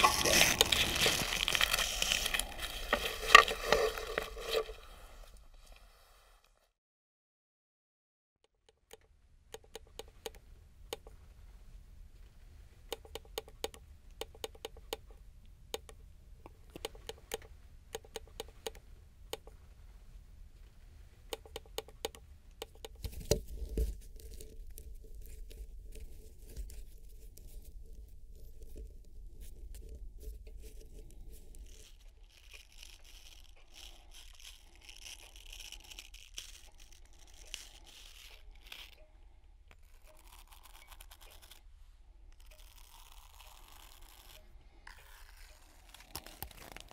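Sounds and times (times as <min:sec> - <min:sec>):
dry scratching and rustling: 0:00.0 - 0:06.4, 0:23.0 - 0:39.1
low hum with held tone: 0:09.0 - 0:46.9.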